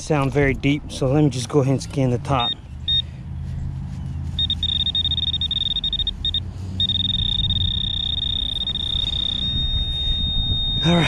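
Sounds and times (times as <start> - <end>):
pinpointer high beep: 2.4 - 3.0, 4.4 - 11.0.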